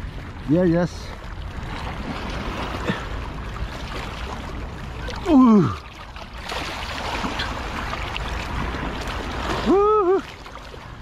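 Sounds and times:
water splashing against rocks: 0.0 - 11.0
person exclaiming: 5.2 - 5.8, 9.6 - 10.2.

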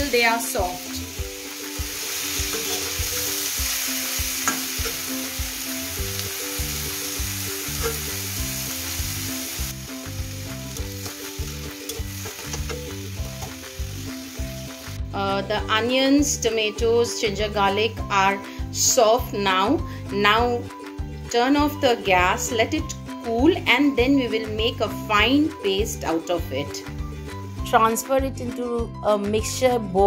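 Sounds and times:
vegetables sizzling in hot oil: 0.0 - 15.0
metal spatula scraping pan: 2.4 - 3.0.

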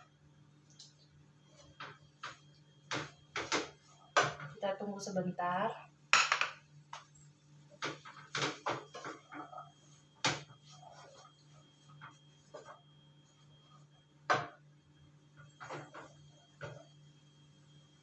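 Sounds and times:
spatula scraping a pan: 8.0 - 12.8.

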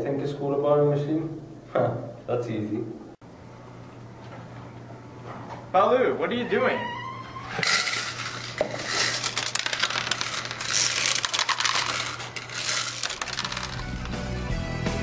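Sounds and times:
plastic wrapper crinkling: 7.6 - 14.2
candies rattling and clicking: 7.6 - 14.5.

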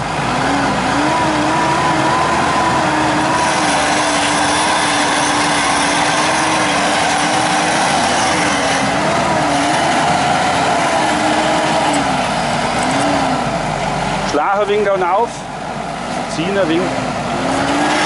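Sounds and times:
electric winch whining: 0.0 - 14.3.

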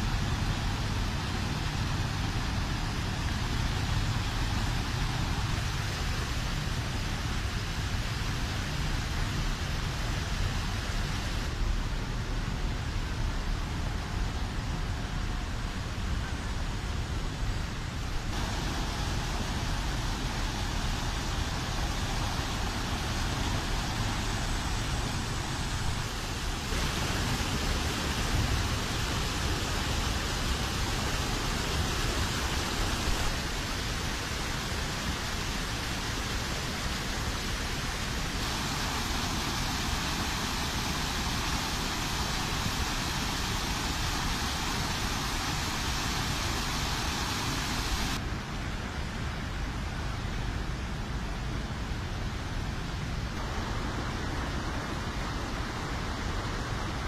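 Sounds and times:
stormwater rushing over sandbags: 0.0 - 57.0.

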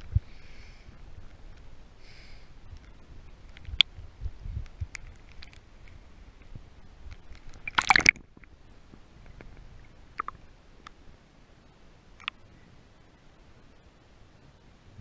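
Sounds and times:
faint underwater clicks: 2.7 - 4.0, 4.6 - 8.6, 9.2 - 11.0, 12.2 - 12.5
water splashing: 7.5 - 8.4.

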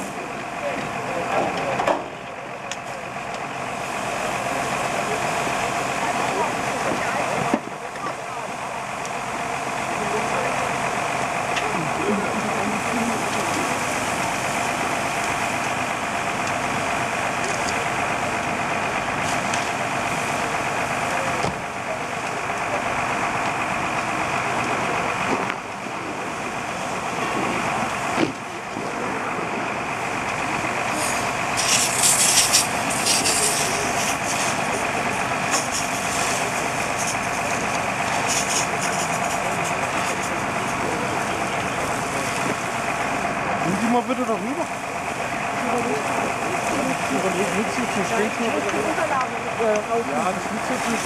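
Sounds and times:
fire engine pump motor droning: 0.0 - 51.0
hissing water spray: 10.2 - 18.4, 19.1 - 21.4, 30.8 - 43.2.

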